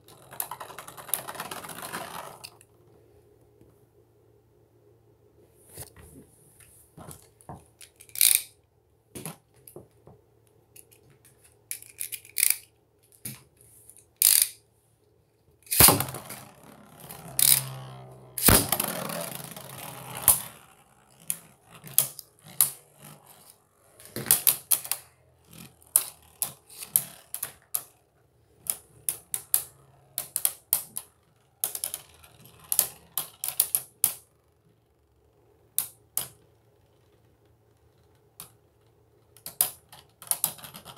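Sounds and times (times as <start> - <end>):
spinning tops whirring: 0.0 - 2.6, 15.7 - 34.7
spinning tops clattering together: 7.9 - 8.5, 11.7 - 12.7, 14.2 - 14.6, 15.7 - 28.0, 28.6 - 34.3.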